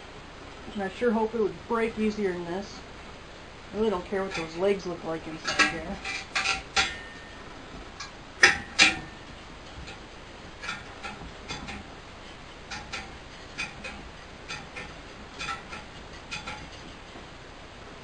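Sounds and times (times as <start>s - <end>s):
metal wire mesh clinking: 3.8s - 7.4s, 8.0s - 10.0s, 10.6s - 17.2s
sharp metal clanks: 5.3s - 7.4s, 8.0s - 10.0s.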